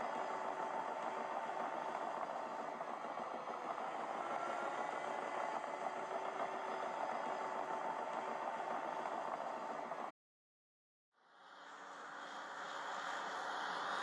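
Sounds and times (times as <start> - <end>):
dozer diesel engine running: 0.0 - 10.1.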